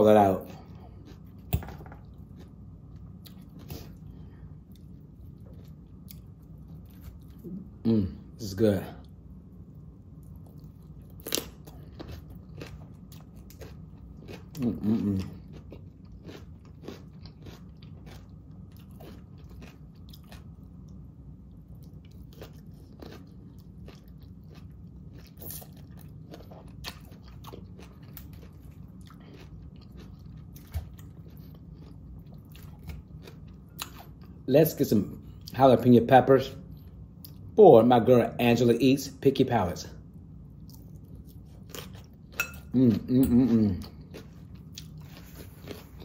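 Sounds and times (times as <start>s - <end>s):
chewing crisp salad: 0.2s - 7.8s, 9.0s - 35.7s, 40.5s - 46.0s
person humming: 14.6s - 15.4s, 42.7s - 43.8s
fork clinking on glass bowl: 42.4s - 42.7s.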